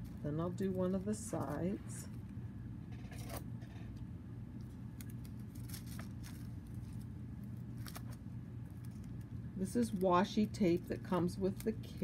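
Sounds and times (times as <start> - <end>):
foil and tape crinkling: 0.0 - 1.8, 4.6 - 12.0
steady low hum: 0.0 - 12.0.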